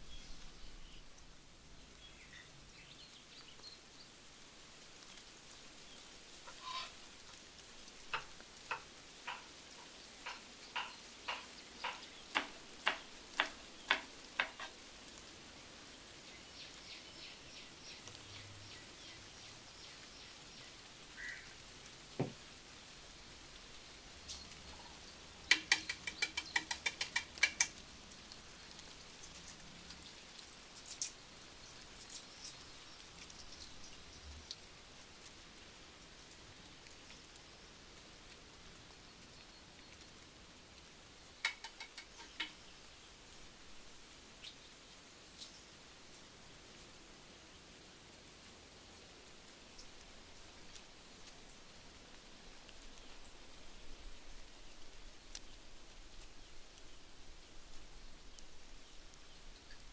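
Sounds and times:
sharp taps from food preparation: 0:08.1 - 0:14.7, 0:25.5 - 0:27.8, 0:41.4 - 0:42.6.

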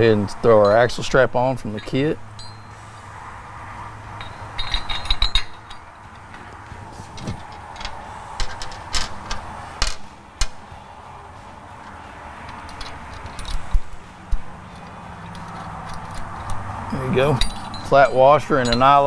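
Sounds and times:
metal clinking: 0:00.0 - 0:02.9, 0:04.0 - 0:19.0
metal knocks and taps: 0:11.8 - 0:16.7.

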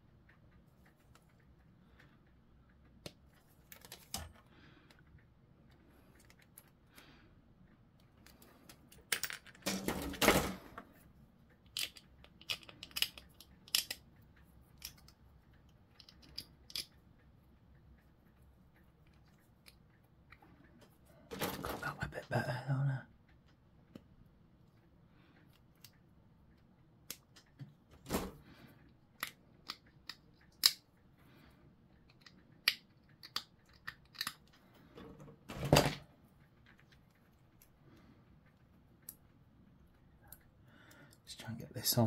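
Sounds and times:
plastic parts clattering: 0:08.3 - 0:10.9, 0:11.6 - 0:14.0.

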